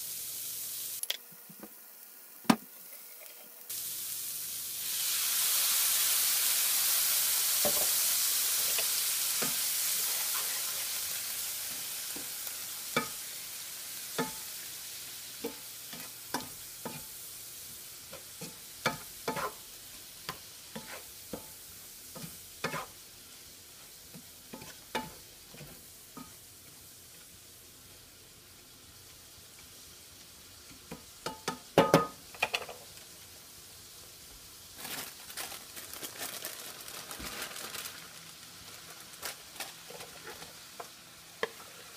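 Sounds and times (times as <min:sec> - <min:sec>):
vegetables hissing in a skillet: 0:00.0 - 0:01.1, 0:01.7 - 0:41.9
wooden spatula scraping a pan: 0:18.1 - 0:19.6, 0:20.7 - 0:21.4, 0:22.1 - 0:23.0, 0:23.8 - 0:26.4, 0:39.8 - 0:41.9
plastic bag crinkling: 0:34.8 - 0:40.5.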